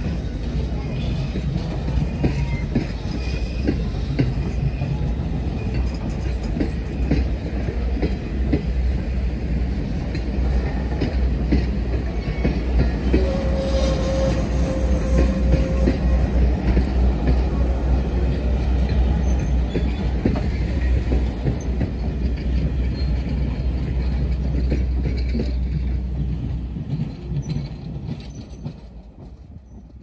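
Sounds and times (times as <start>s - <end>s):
steam locomotive rumbling: 0.0s - 30.0s.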